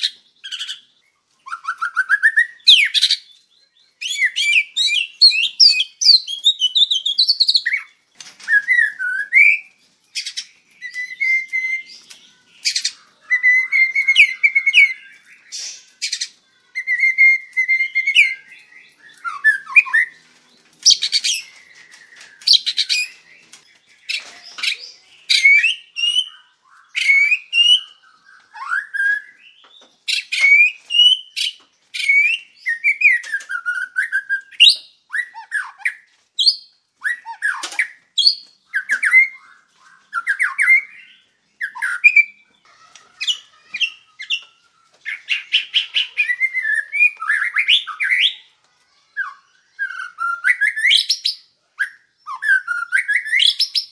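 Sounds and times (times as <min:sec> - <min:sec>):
songbird singing: 0:00.0 - 0:53.9.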